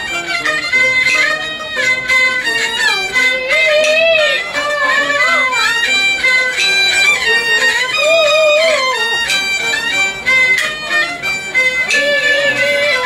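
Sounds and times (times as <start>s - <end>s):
bowed fiddle: 0.0s - 13.0s
plucked lute: 0.0s - 13.0s.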